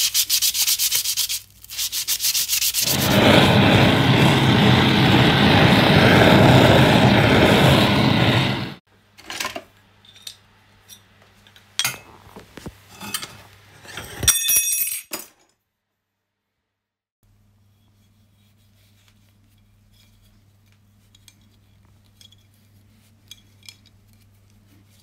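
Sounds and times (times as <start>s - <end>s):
gas torch flame hissing: 2.8s - 8.8s.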